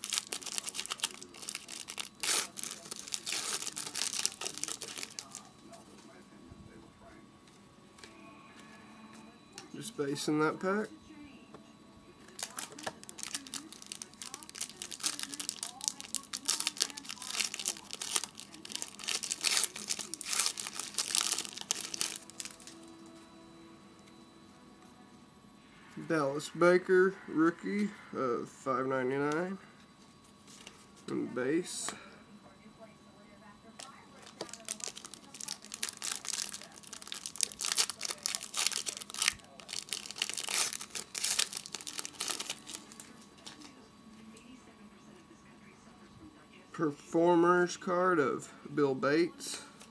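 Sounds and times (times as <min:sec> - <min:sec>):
foil wrapper tearing and crinkling: 0:00.0 - 0:05.5, 0:12.3 - 0:22.8, 0:33.8 - 0:43.2.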